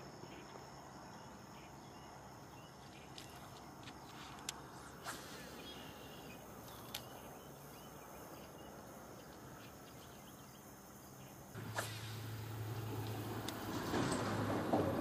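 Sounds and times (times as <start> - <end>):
insects chirping: 0.0 - 15.0
birds chirping: 0.2 - 13.8
electric trolling motor humming: 11.6 - 14.8.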